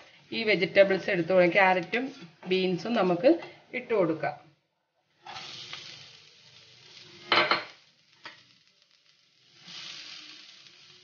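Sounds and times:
vegetables sizzling in a frying pan: 0:00.0 - 0:04.3, 0:05.0 - 0:11.0.

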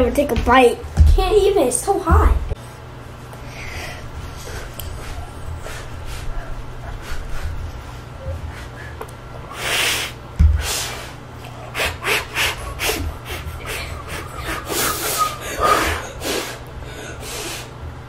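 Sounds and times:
breaths: 0:03.4 - 0:07.5.

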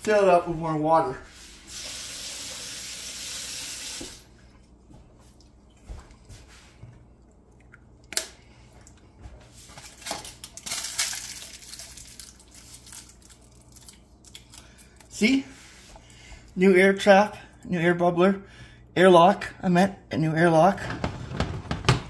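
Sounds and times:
water running from a tap: 0:01.6 - 0:04.3.

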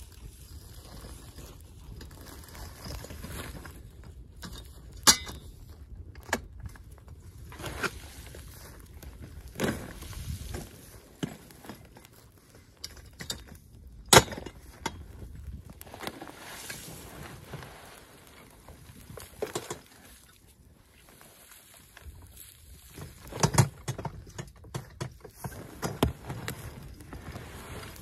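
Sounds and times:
rustling debris: 0:00.0 - 0:28.0.

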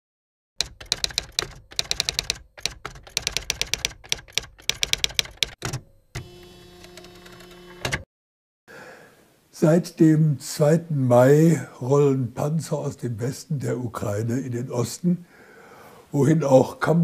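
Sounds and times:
typewriter keys clacking: 0:00.6 - 0:05.8.

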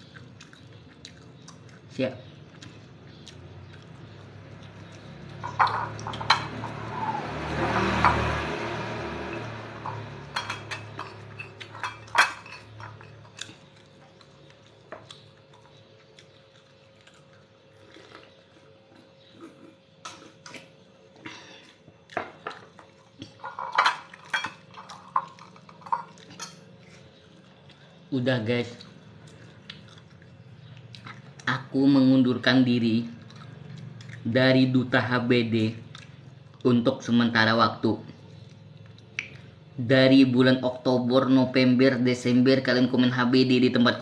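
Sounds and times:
ceramic plates clinking: 0:05.4 - 0:07.1, 0:09.8 - 0:13.4.

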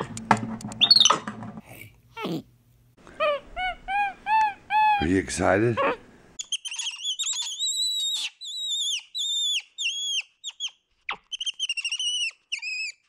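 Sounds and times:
monkey chirping: 0:00.8 - 0:01.2, 0:03.2 - 0:05.1, 0:05.8 - 0:13.0.

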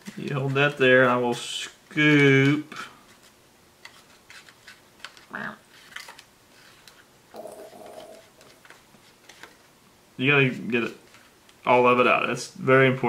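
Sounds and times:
person humming: 0:07.4 - 0:08.6
person murmuring: 0:07.4 - 0:08.6.

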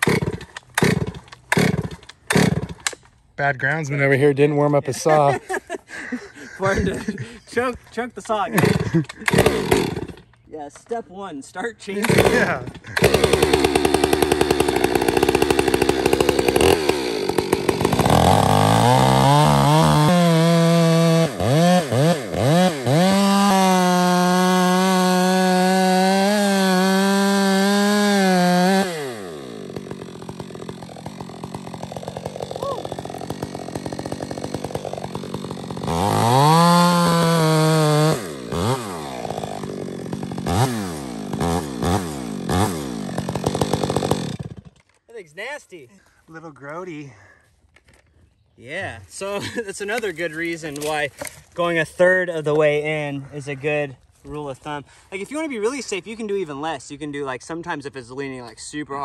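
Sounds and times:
chainsaw engine revving: 0:00.0 - 0:02.9, 0:08.5 - 0:10.3, 0:11.9 - 0:44.8.

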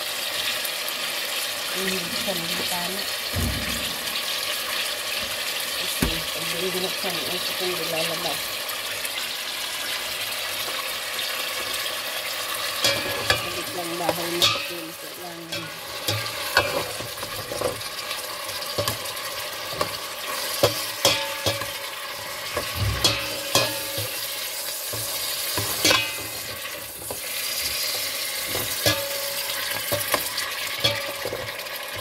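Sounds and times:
meat and onions sizzling in oil: 0:00.0 - 0:32.0
spatula scraping and knocking pot: 0:15.6 - 0:17.8, 0:18.7 - 0:24.2.

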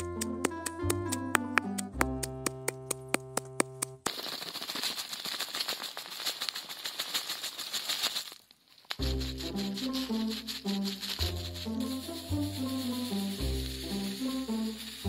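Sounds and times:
music with ticking beat: 0:00.0 - 0:04.0, 0:09.0 - 0:15.0
salt pouring into mortar: 0:04.1 - 0:15.0.

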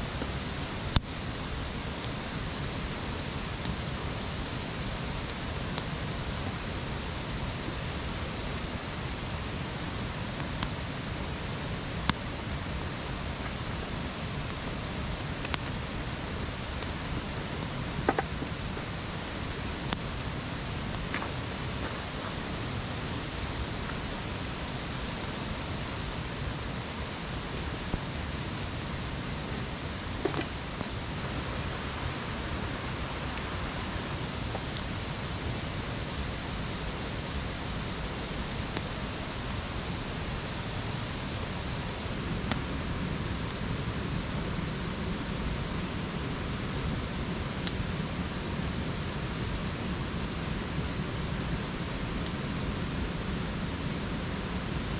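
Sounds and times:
campfire popping and crackling: 0:00.0 - 0:54.9
fire rushing hiss: 0:00.0 - 0:54.9.

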